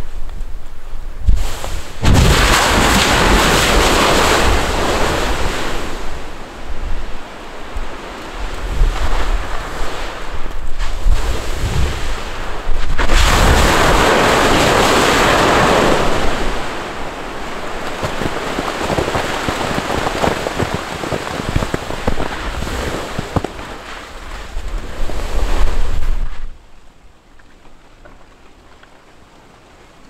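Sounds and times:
low gusty volcanic rumble: 0:00.0 - 0:26.7
loud rushing volcanic blast: 0:01.2 - 0:26.5
sharp cracks: 0:01.3 - 0:05.6, 0:12.7 - 0:24.9.

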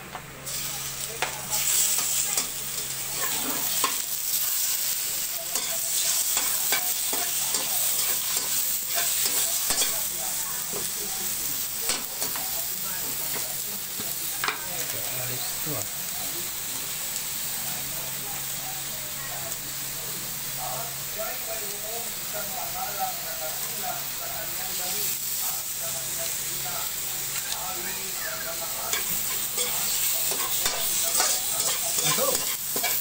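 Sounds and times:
food sizzling in a wok: 0:00.0 - 0:33.0.

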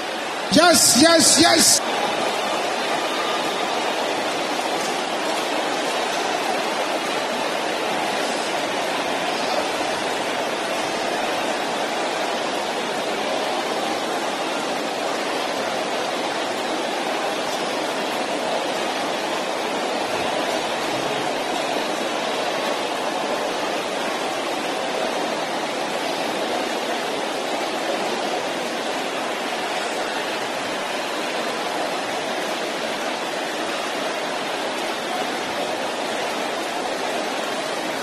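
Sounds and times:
congregation praying aloud: 0:00.5 - 0:02.0.

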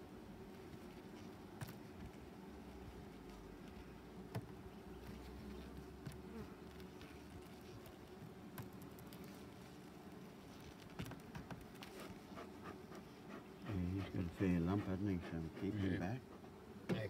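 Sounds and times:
honeybees buzzing: 0:00.0 - 0:17.0
wooden hive frames knocking: 0:04.2 - 0:04.7, 0:16.3 - 0:17.0.

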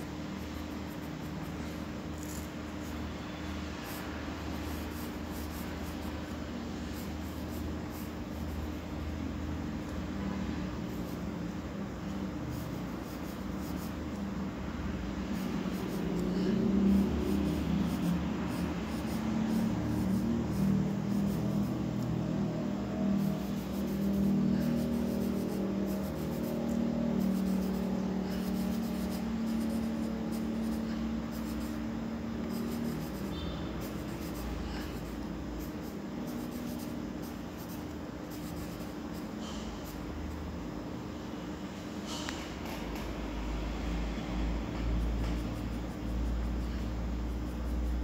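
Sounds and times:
pencil scratching on paper: 0:00.0 - 0:08.9, 0:10.8 - 0:11.3, 0:12.2 - 0:14.3, 0:15.0 - 0:40.0, 0:44.6 - 0:48.0
low droning hum: 0:00.0 - 0:48.0.

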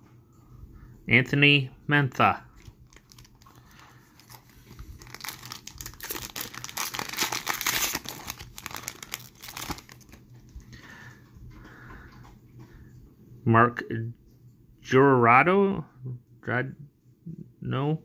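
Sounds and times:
foil wrapper crinkling and tearing: 0:02.6 - 0:10.2.

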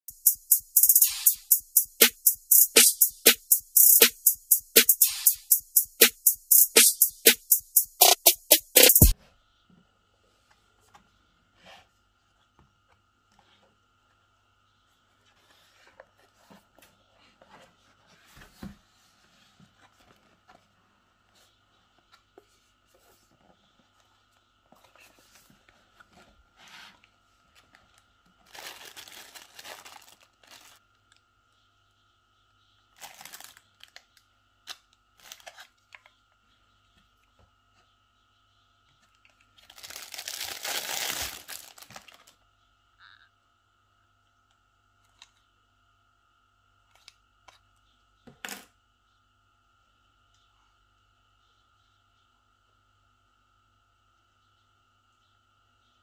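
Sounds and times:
plastic bags crinkling: 0:28.4 - 0:30.8, 0:33.0 - 0:33.6, 0:39.6 - 0:42.3.

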